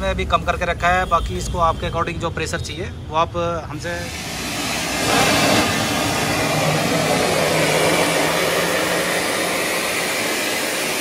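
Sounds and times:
steam hissing from valve: 4.0s - 11.0s.

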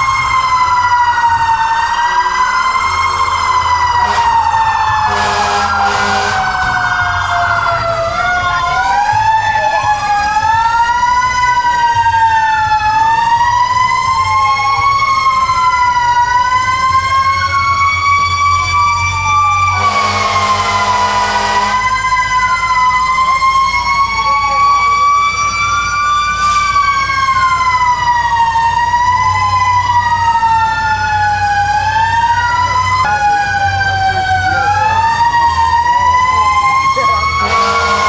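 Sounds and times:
fire engine sirens wailing: 0.0s - 38.0s
loud horn blast: 4.0s - 6.6s, 19.8s - 21.9s, 37.3s - 38.0s.

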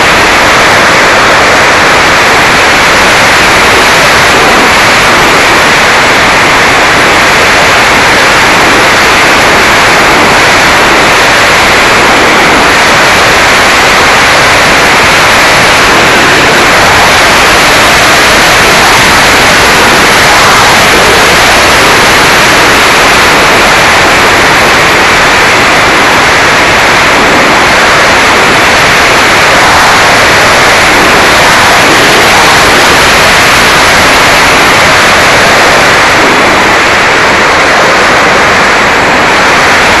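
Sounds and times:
electric propeller noise: 0.0s - 40.0s
wind rush: 0.0s - 40.0s.

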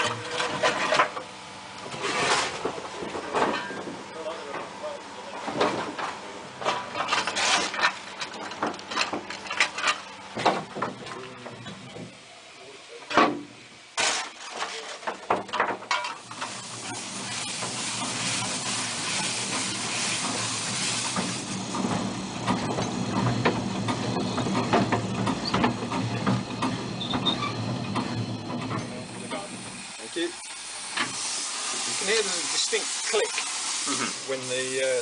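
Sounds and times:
steam locomotive rattle and rumble: 0.0s - 13.7s, 14.4s - 35.0s
hiss of steam: 16.2s - 21.8s, 28.9s - 35.0s.

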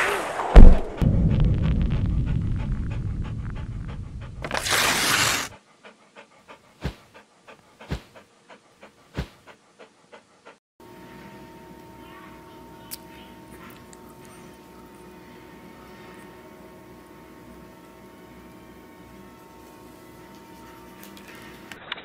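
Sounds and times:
whoosh: 0.0s - 4.4s
low thumps: 0.4s - 4.4s
dog panting: 2.0s - 4.5s, 5.2s - 10.6s.

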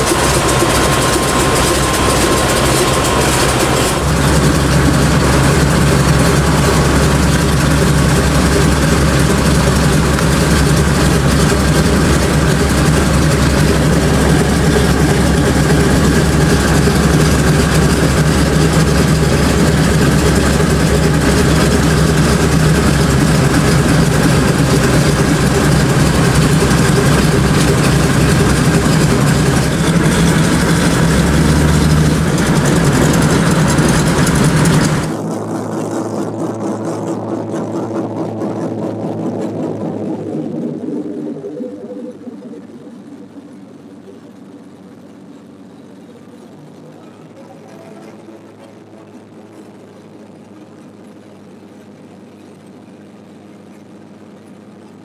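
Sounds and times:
propeller plane engines droning: 0.0s - 55.0s.

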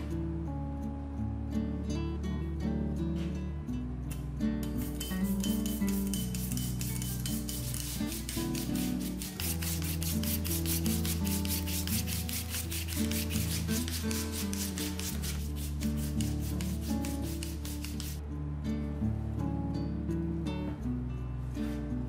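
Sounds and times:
soft background music: 0.0s - 22.0s
potato rasping on grater: 4.9s - 18.2s.

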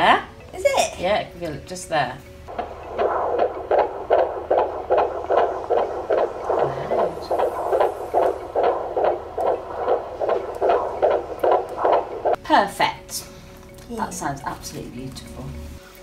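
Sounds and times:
fetal heartbeat on doppler: 2.5s - 12.4s.

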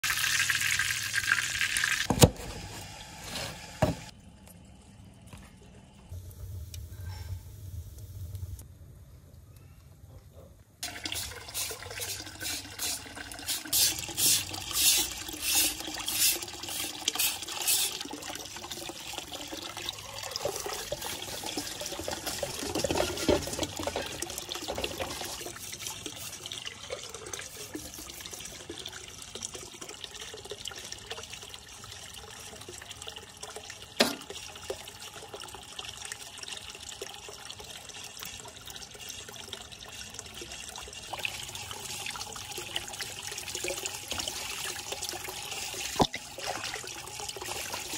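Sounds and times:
water sloshing in a steel bowl: 10.8s - 29.2s, 37.8s - 47.9s.

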